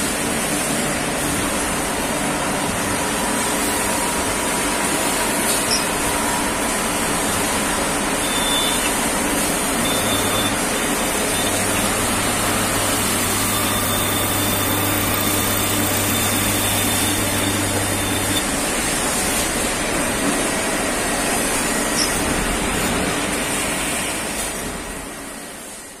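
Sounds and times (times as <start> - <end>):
lathe machining din: 0.2 - 24.2.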